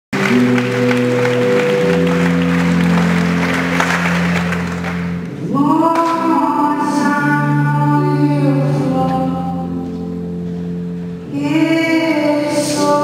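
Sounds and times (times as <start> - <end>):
audience applause and cheering: 0.1 - 5.4
live concert chords: 0.1 - 13.0
woman singing: 5.4 - 10.2, 11.3 - 13.0.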